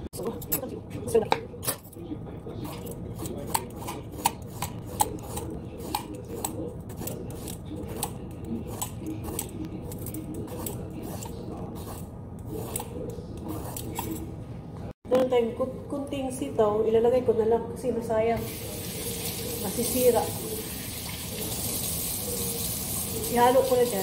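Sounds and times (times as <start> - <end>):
knife chopping vegetables: 2.6 - 14.1.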